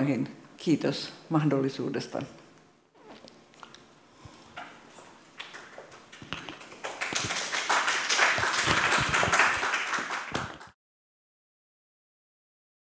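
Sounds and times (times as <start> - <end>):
small group applauding: 5.4 - 10.8.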